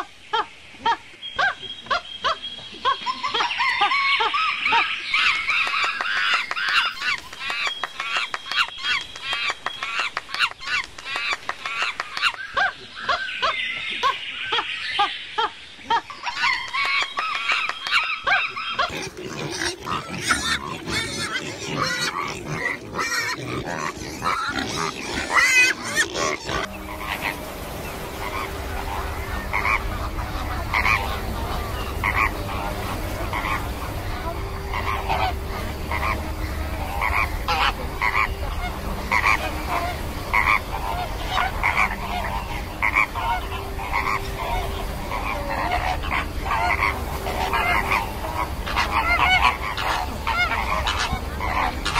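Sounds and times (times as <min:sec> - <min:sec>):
clicks and bird calls: 0:01.3 - 0:15.2, 0:15.8 - 0:51.9
flamingos honking: 0:01.9 - 0:14.7, 0:15.9 - 0:51.9
steady low hum: 0:26.6 - 0:51.9.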